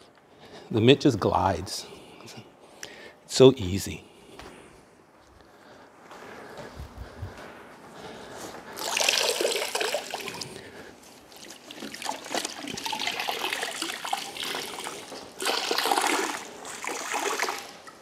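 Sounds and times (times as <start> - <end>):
water streaming into bucket: 8.8 - 10.6, 11.3 - 18.0
wash mitt sloshing in bucket: 8.8 - 18.0.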